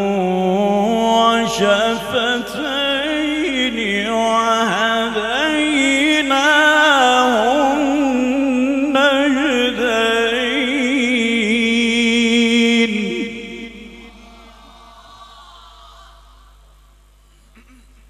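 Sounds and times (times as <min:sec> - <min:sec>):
man reciting melodically: 0:00.0 - 0:14.6.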